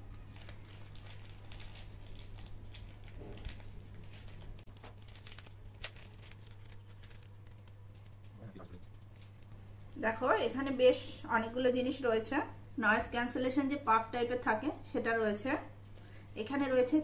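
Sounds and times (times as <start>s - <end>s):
plastic packet crinkling: 0.0s - 9.6s
steady low hum: 0.0s - 17.0s.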